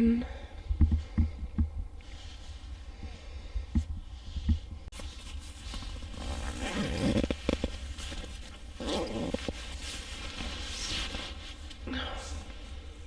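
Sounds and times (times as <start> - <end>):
fabric rustling: 4.2 - 13.0
zipper being pulled: 5.6 - 11.4.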